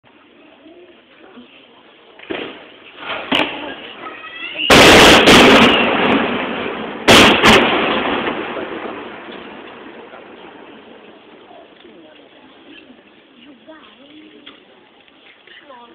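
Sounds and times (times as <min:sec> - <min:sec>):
fireworks bursting with echo: 0:02.1 - 0:13.7.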